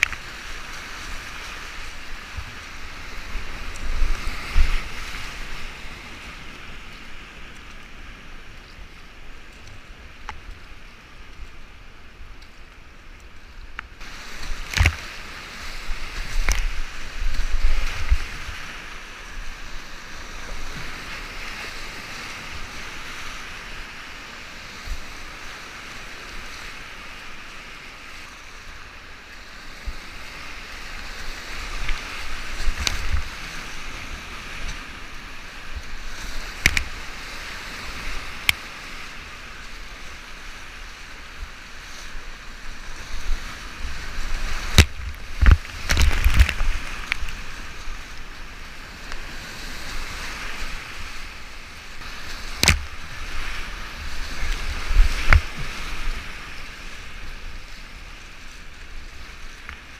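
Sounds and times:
water striking boat: 44.4 - 47.3, 52.0 - 56.3
paddle splashing and knocking: 44.4 - 47.4, 52.1 - 53.5, 54.6 - 56.0.

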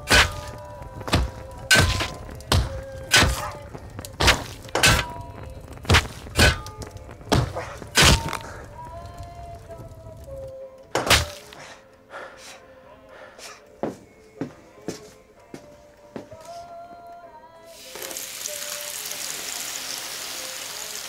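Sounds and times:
heavy blows from metal pot and rod: 0.0 - 9.0, 10.9 - 11.7
faint background music: 0.0 - 21.0.

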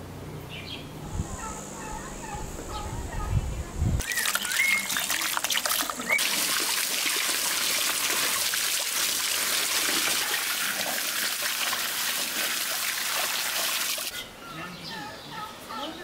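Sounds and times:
tap water splashing on vegetables: 4.0 - 14.1.

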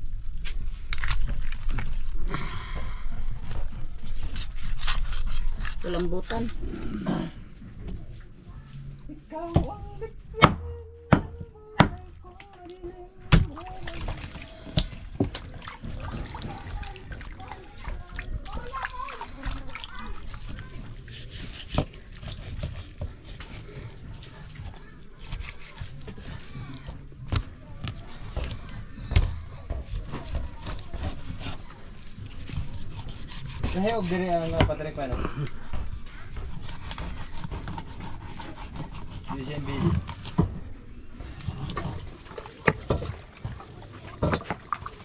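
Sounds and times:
water sloshing in metal basin: 12.4 - 23.0, 39.4 - 45.0.

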